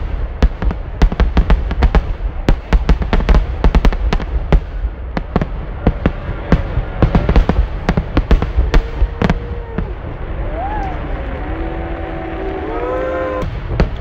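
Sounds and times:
fireworks bangs and crackles: 0.0 - 14.0
low rumble: 4.8 - 14.0.

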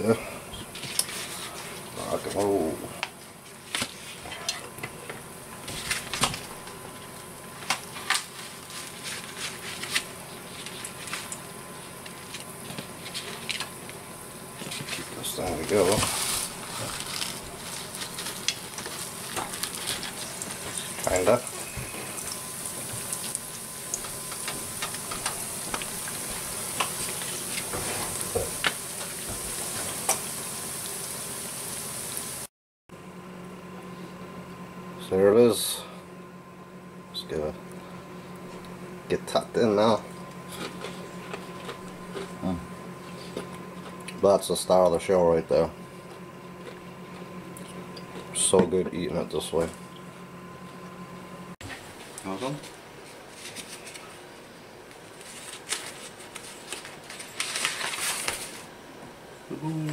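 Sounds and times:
oil popping and crackling: 15.7 - 31.2
food sizzling in hot oil: 17.8 - 32.5.

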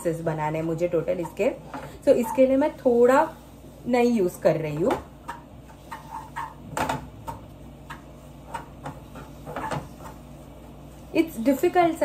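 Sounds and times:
wooden spatula scraping frying pan: 5.7 - 6.6, 7.8 - 11.8.

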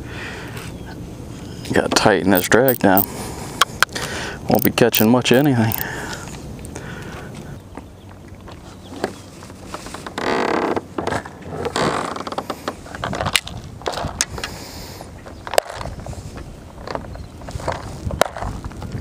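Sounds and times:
sharp clicks and scrapes: 1.7 - 3.1, 4.5 - 5.9
fishing reel rasping: 2.3 - 3.1, 4.5 - 5.9.

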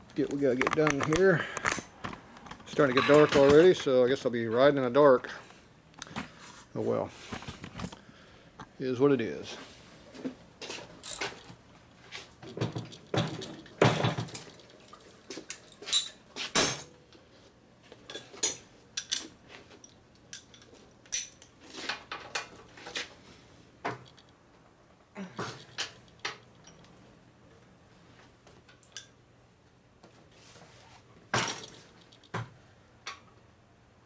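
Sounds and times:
hand tools clinking on metal: 0.3 - 1.8, 2.6 - 4.0, 11.0 - 11.5.

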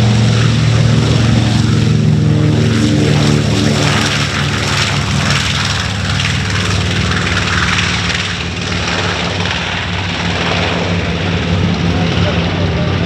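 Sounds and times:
propeller aircraft engines droning: 0.0 - 13.0.

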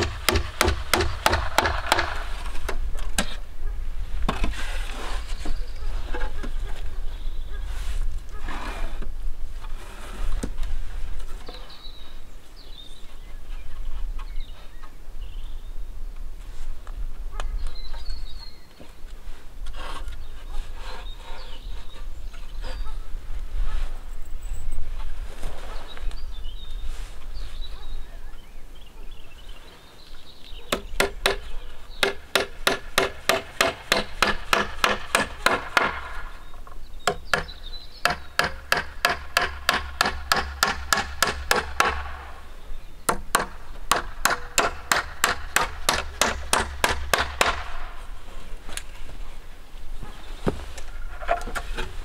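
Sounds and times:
hatchet striking wooden plank: 0.0 - 2.2, 32.0 - 36.2, 37.1 - 42.2, 43.1 - 47.8.

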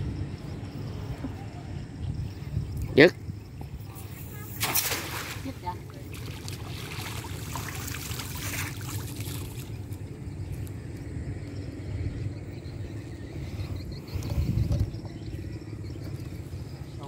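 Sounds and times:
water splashing and trickling: 3.8 - 10.2
steady low rumble: 8.4 - 17.0.

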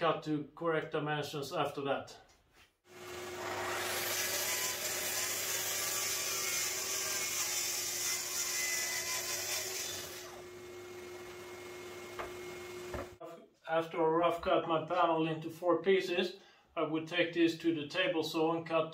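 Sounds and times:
circular saw cutting plywood: 2.9 - 13.2.

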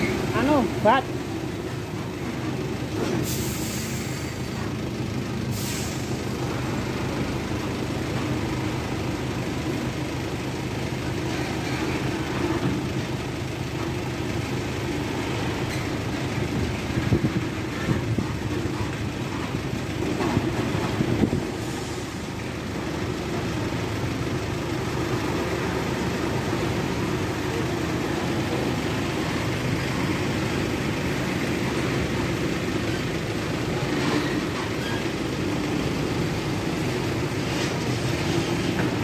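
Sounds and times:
truck diesel engine running: 0.0 - 39.0
air brake hisses: 3.1 - 4.6, 5.5 - 6.2.

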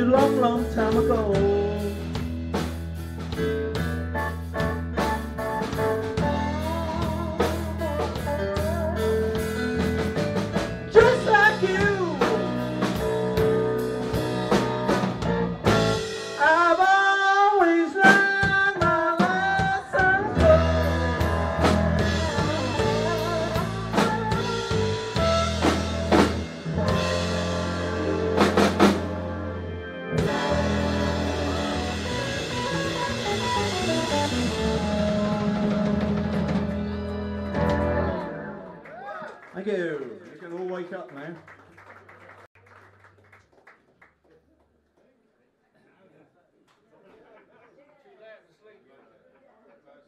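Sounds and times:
bass low end: 0.0 - 16.1, 19.3 - 38.6
drum kit: 0.0 - 38.8
keyboard: 0.0 - 38.9
electric guitar: 0.0 - 39.0.

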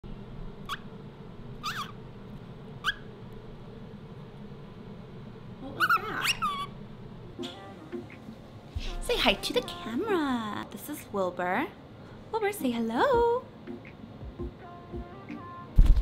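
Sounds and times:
cockatiel chirping: 0.7 - 0.9, 1.6 - 2.0, 2.8 - 3.1, 5.8 - 6.7.

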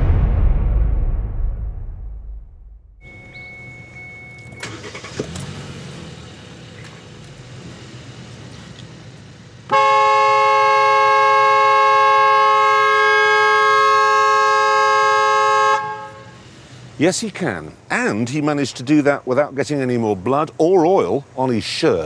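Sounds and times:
car horn blast: 9.7 - 16.4.

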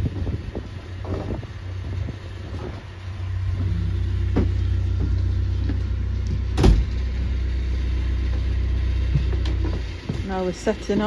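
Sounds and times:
boat diesel engine humming: 0.0 - 11.0
single thump: 6.3 - 7.0.

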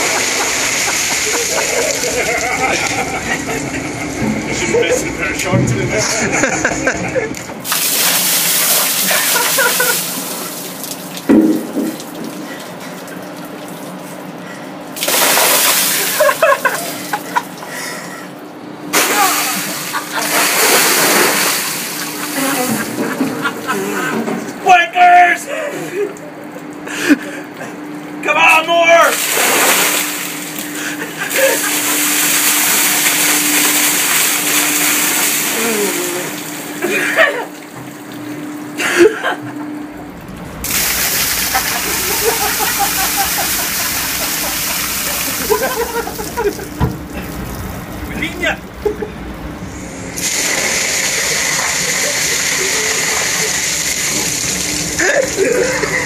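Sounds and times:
water gushing and splashing: 0.0 - 4.8, 7.6 - 17.9, 18.8 - 23.6, 29.2 - 38.8, 39.8 - 56.0
steady hum: 0.0 - 56.0
person crying out: 19.0 - 19.7, 35.5 - 37.3.

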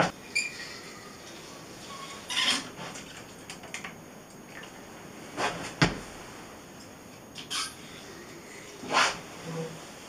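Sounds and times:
squeegee rubbing swishes: 8.8 - 10.0.

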